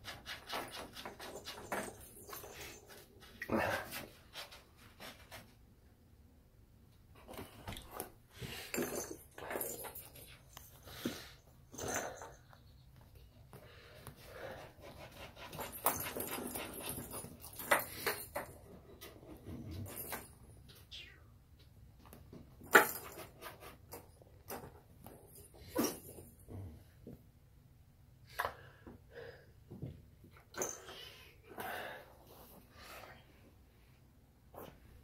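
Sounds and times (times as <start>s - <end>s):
toy ball and towel rustling on floor: 0.0s - 5.6s, 7.2s - 20.7s.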